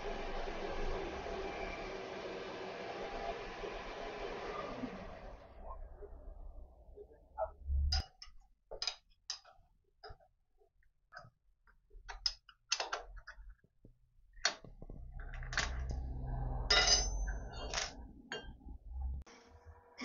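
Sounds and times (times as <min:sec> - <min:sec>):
metal clinks and knocks: 0:14.4 - 0:18.7.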